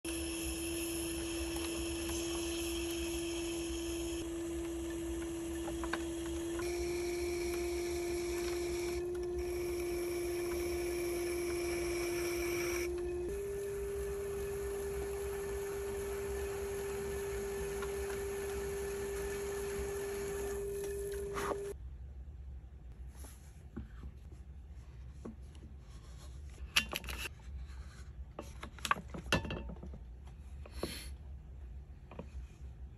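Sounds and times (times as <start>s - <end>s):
pottery wheel motor humming: 0.0s - 21.8s
tool scraping spinning clay: 0.1s - 21.8s.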